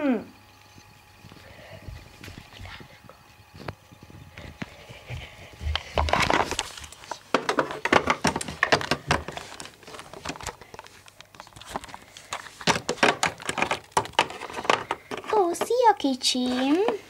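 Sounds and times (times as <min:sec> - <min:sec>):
handling clicks and rustling: 0:05.7 - 0:17.0.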